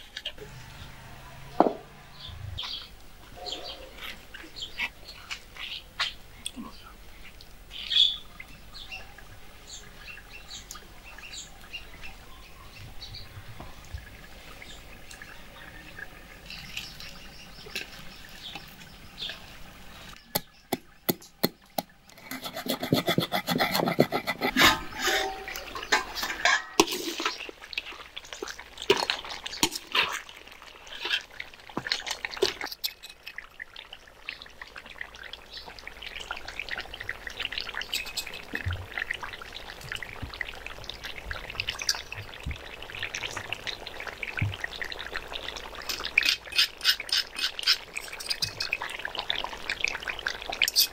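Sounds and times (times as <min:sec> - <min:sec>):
faint birds chirping: 0:00.2 - 0:22.2
pestle pounding in stone mortar: 0:22.3 - 0:24.6.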